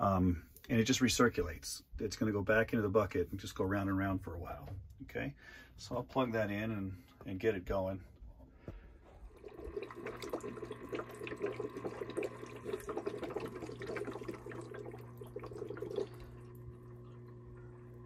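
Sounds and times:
hose sputtering and gurgling: 0:09.1 - 0:18.0
pump humming: 0:09.1 - 0:18.0.

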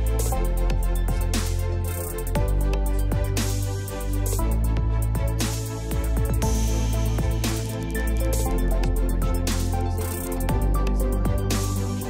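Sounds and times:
deep bass: 0:00.0 - 0:12.0
held synth chords: 0:00.0 - 0:12.0.

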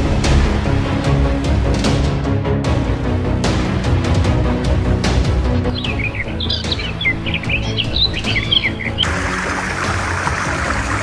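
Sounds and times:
background music: 0:00.0 - 0:11.0
small bird chirping: 0:05.6 - 0:09.1.

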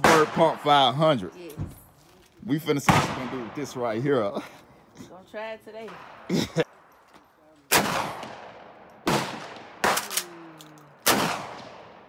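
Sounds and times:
shotgun blasts echoing: 0:00.0 - 0:00.9, 0:02.8 - 0:04.0, 0:07.7 - 0:10.3, 0:11.0 - 0:12.0.

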